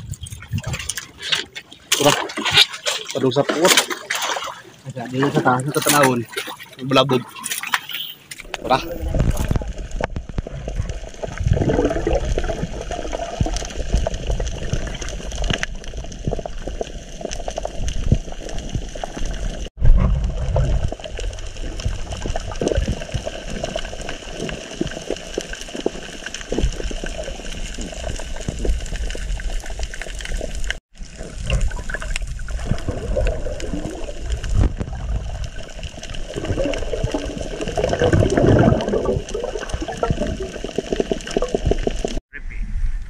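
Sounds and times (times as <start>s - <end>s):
crackles: 4.9s - 43.0s
muffled underwater rushing and bubbling: 8.4s - 42.2s.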